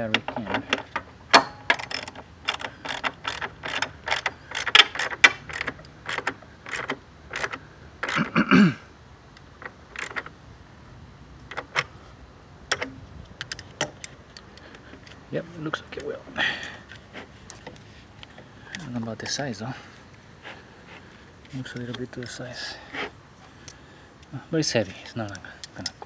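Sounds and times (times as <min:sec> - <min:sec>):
socket ratchet clicking: 0:00.8 - 0:08.3, 0:09.4 - 0:10.3.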